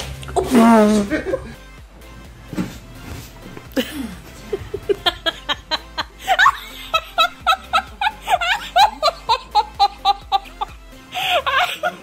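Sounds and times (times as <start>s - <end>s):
background music: 0.0s - 12.0s
person laughing hard: 0.4s - 1.6s, 3.7s - 12.0s.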